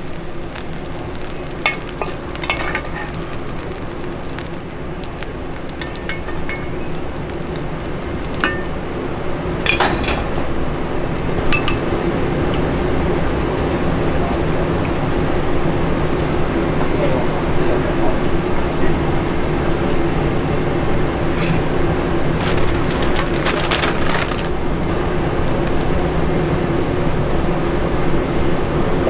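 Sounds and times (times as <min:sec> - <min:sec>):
pork sizzling in hot oil: 0:00.0 - 0:11.9
metal ladle clinking and scraping: 0:01.6 - 0:03.3.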